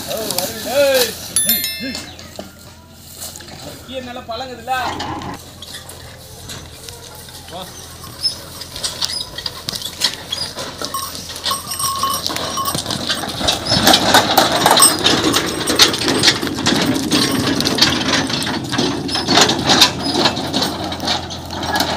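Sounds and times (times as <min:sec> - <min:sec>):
cart frame rattling: 0:00.0 - 0:21.9
bells jingling: 0:01.1 - 0:04.6, 0:10.2 - 0:17.8.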